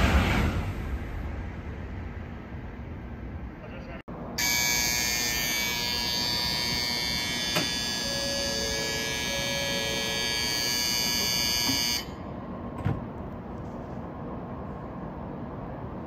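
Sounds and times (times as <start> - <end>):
electric bell ringing: 4.4 - 12.2.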